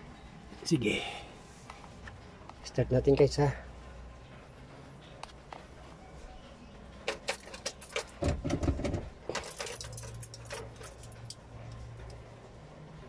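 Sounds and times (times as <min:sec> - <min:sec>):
keys jangling: 0:07.0 - 0:08.2, 0:09.3 - 0:11.8.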